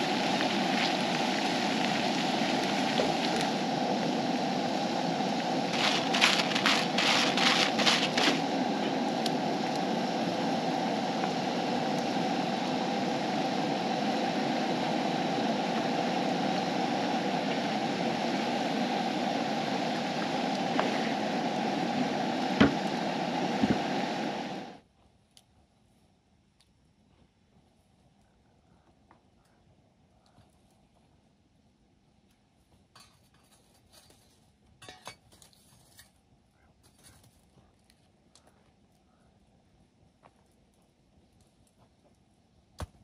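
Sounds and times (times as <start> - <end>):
fries sizzling in oil: 0.0 - 24.6, 33.0 - 36.1.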